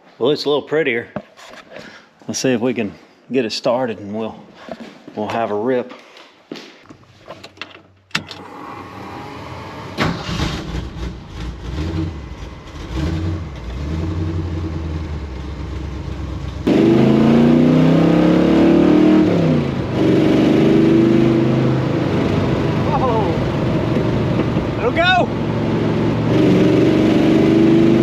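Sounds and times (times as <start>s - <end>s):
engine starting and revving: 8.2s - 23.3s, 26.0s - 28.0s.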